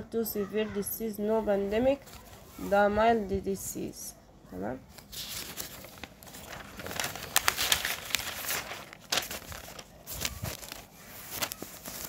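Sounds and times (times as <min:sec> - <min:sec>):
paper pages rustling: 0:01.6 - 0:02.8, 0:04.9 - 0:12.0.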